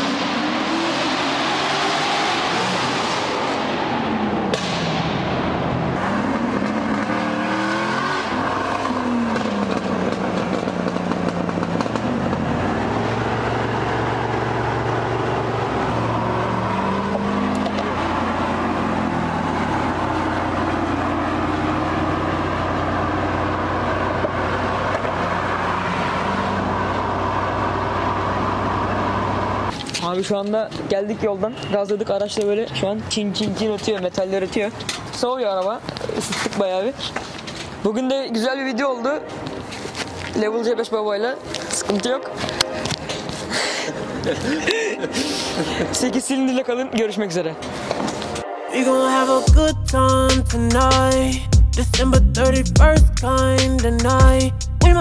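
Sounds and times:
car engine accelerating hard: 0:00.0 - 0:29.7.

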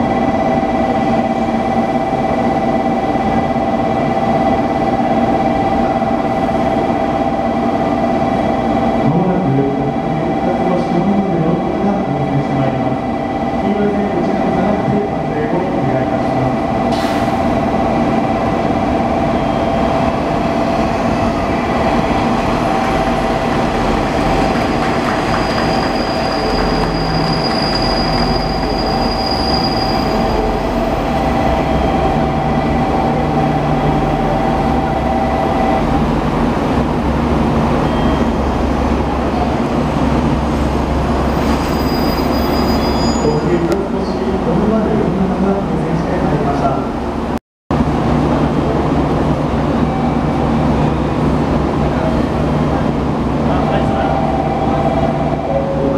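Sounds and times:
diesel engine drone: 0:12.6 - 0:25.8, 0:30.2 - 0:41.3
train brake and wheel squeal: 0:25.3 - 0:30.8, 0:37.7 - 0:38.6, 0:41.2 - 0:43.6.

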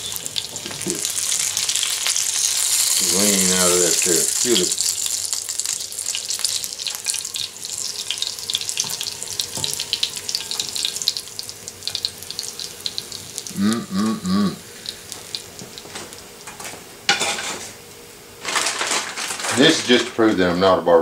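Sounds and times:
meat sizzling in grease: 0:00.0 - 0:13.8, 0:14.6 - 0:17.6
short voice-like notes: 0:13.5 - 0:14.6.

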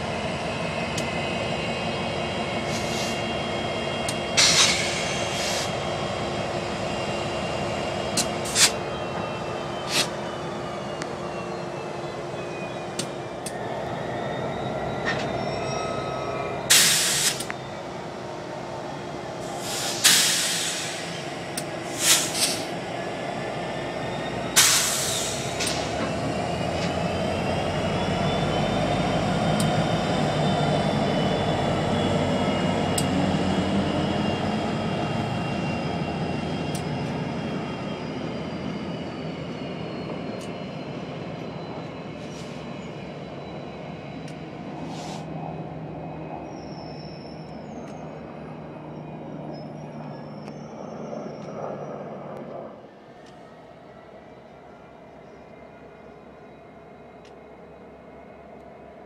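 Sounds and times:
diesel locomotive engine drone: 0:00.0 - 0:59.0
wavering wheel squeal: 0:06.6 - 0:16.7, 0:23.8 - 0:52.3.

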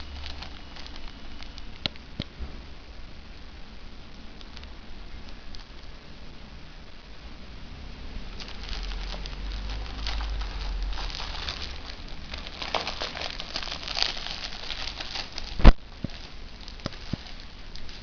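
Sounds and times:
wrapper crinkling and tearing: 0:00.0 - 0:01.8, 0:08.3 - 0:18.0.

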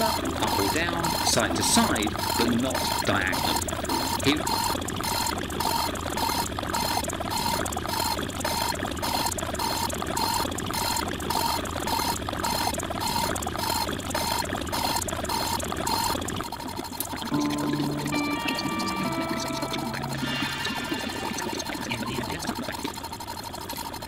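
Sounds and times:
steady held tones: 0:17.3 - 0:22.8.

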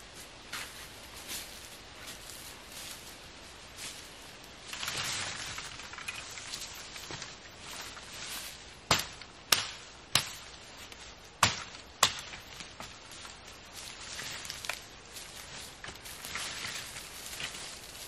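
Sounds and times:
dry wood snapping: 0:04.7 - 0:07.4, 0:08.9 - 0:13.4, 0:14.2 - 0:14.9.

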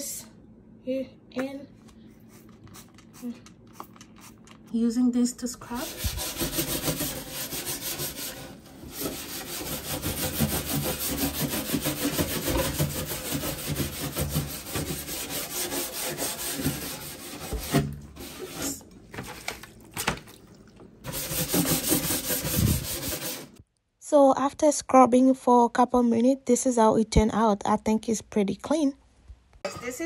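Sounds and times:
scrubbing a cabinet shelf: 0:05.6 - 0:19.6, 0:21.0 - 0:23.6.

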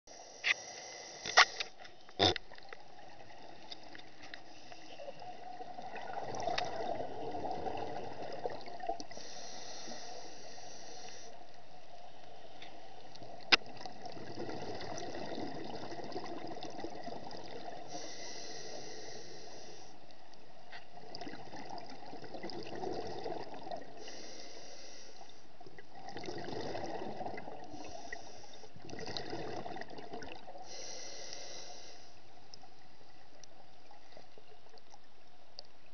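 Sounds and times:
regulator inhalation hiss: 0:00.1 - 0:01.7, 0:09.2 - 0:11.4, 0:17.9 - 0:20.0, 0:24.0 - 0:25.4, 0:27.8 - 0:28.7, 0:30.6 - 0:32.2
exhaled air bubbling: 0:02.1 - 0:11.8, 0:12.8 - 0:35.0.

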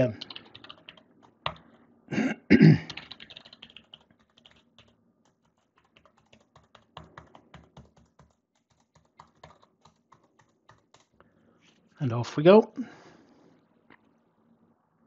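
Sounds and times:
typing on computer keyboard: 0:00.0 - 0:01.8, 0:02.8 - 0:11.2.

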